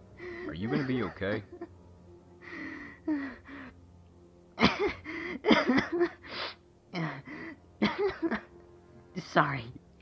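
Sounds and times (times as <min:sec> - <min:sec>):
person sobbing: 0:00.2 - 0:01.7, 0:02.4 - 0:03.8, 0:04.6 - 0:08.5.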